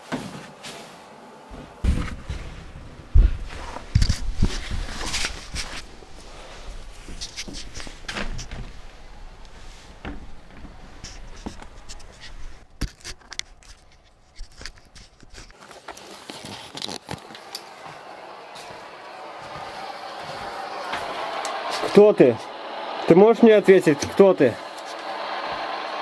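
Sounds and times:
camera handling rustling: 11.0s - 17.2s.

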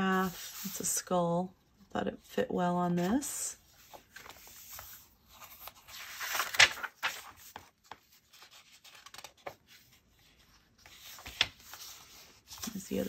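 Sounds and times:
paper pages turning: 2.9s - 13.0s.

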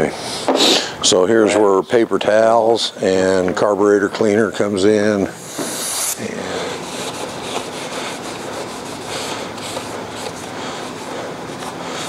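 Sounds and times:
paper towel wiping metal: 5.5s - 12.0s.

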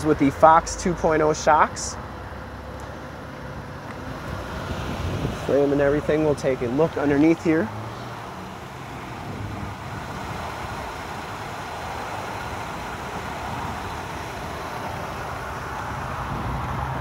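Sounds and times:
motor vehicle rumbling hiss: 0.1s - 17.0s.

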